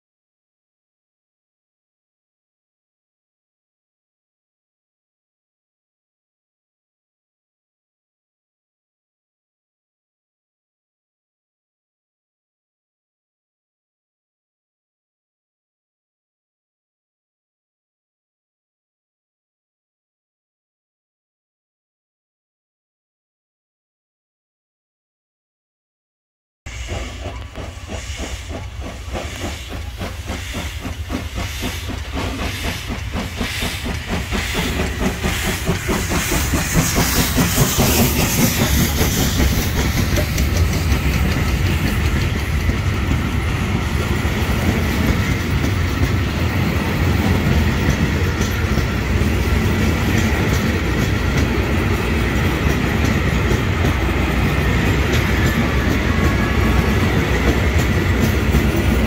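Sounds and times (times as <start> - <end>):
carriages rumbling on rails: 26.7 - 59.0
steam hissing: 26.7 - 59.0
steam locomotive exhaust beats: 26.7 - 59.0.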